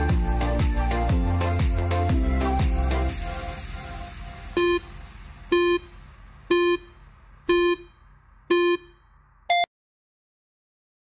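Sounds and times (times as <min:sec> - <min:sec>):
electronic countdown beeps: 0:04.6 - 0:04.9, 0:05.5 - 0:09.7
higher final beep: 0:04.6 - 0:09.7.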